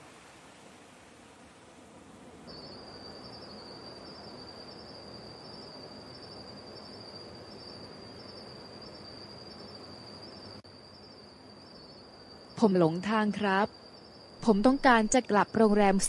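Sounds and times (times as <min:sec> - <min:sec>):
soft even hiss: 0:00.0 - 0:16.0
insects trilling: 0:02.1 - 0:16.0.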